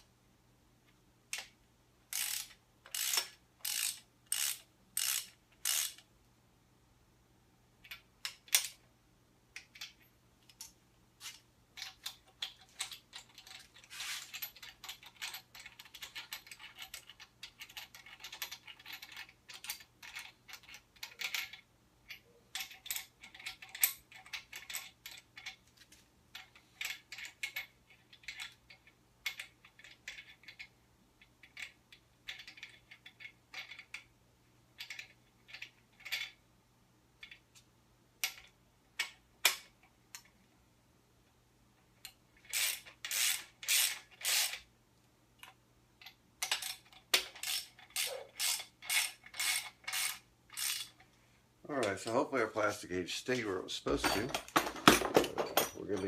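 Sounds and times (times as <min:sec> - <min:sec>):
socket ratchet clicking: 0:02.1 - 0:06.0, 0:42.5 - 0:44.6, 0:46.4 - 0:51.0.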